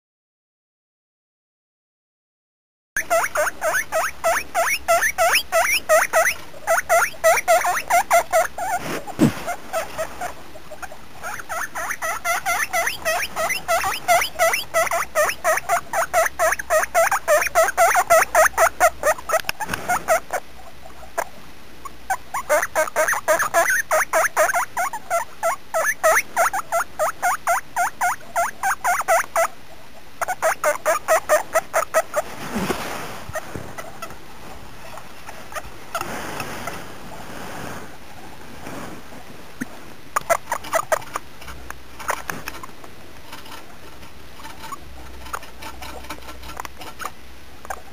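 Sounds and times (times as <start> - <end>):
guinea pig squeaking: 3.0 - 29.6, 30.2 - 32.3, 34.8 - 36.0, 40.2 - 43.7, 44.4 - 47.8.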